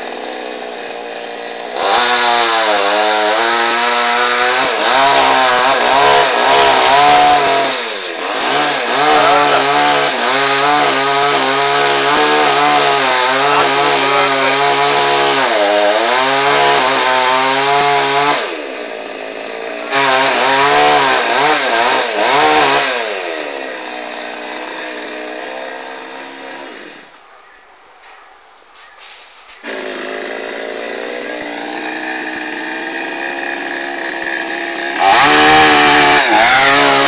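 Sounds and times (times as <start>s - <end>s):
chainsaw revving while cutting: 0.0s - 27.1s, 29.6s - 37.0s.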